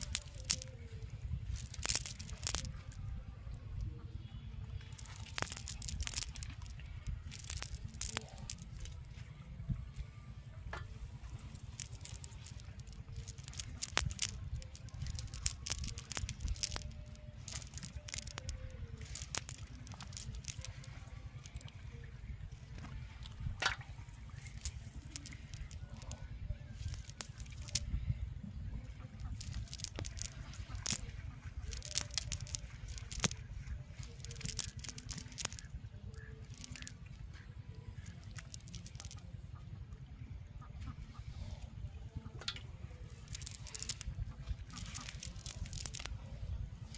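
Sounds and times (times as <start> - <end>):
net mesh rustling: 0.0 - 0.8, 1.5 - 2.9, 4.9 - 9.0, 11.6 - 21.7, 24.5 - 26.0, 26.8 - 27.8, 29.3 - 33.4, 34.0 - 35.7, 38.0 - 39.2, 43.2 - 44.1, 44.7 - 46.1
metal sinkers clicking: 0.0 - 3.0, 4.8 - 9.2, 10.8 - 21.8, 24.4 - 28.0, 29.0 - 37.0, 37.9 - 39.3, 42.4 - 46.9
low steady rumble: 0.0 - 46.9
net mesh rustling on grass: 31.7 - 33.4.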